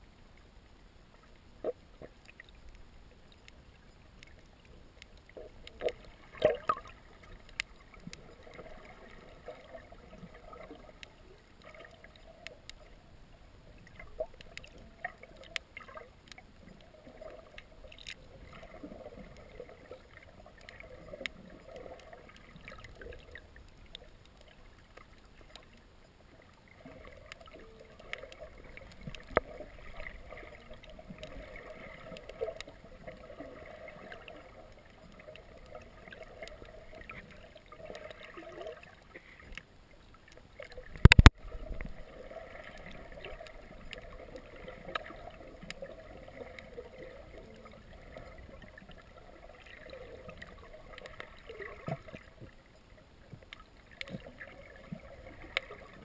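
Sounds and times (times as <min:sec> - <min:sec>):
underwater water rush: 0:00.0 - 0:56.0
sharp clicks: 0:41.0 - 0:41.4.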